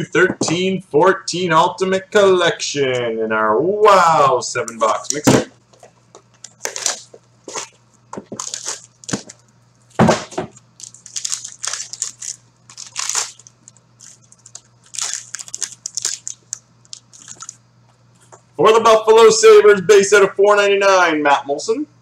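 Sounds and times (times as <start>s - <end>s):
faint steady hum: 0.0s - 22.0s
cardboard and foil tearing: 6.6s - 9.4s, 10.8s - 17.6s.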